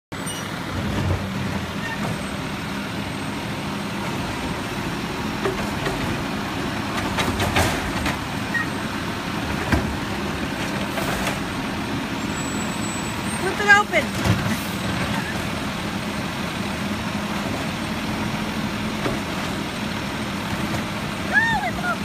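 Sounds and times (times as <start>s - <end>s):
garbage truck diesel engine: 0.1s - 22.0s
trash cart knocks and clatters: 5.4s - 8.6s, 9.5s - 11.6s
cart thump: 6.9s - 8.6s.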